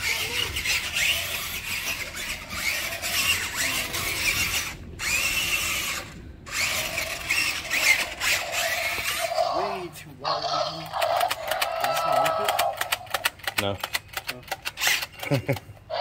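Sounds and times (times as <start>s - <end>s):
electric motor whining: 0.0s - 9.8s.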